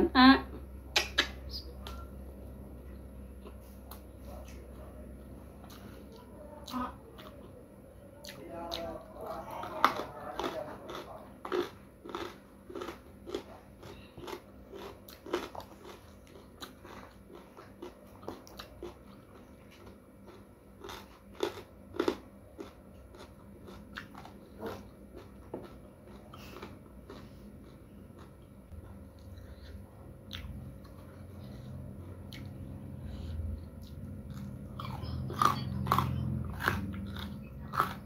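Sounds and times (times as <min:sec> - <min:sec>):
person chewing food: 0:00.6 - 0:07.6, 0:08.2 - 0:38.0
wet mouth clicks and smacks: 0:01.0 - 0:02.0.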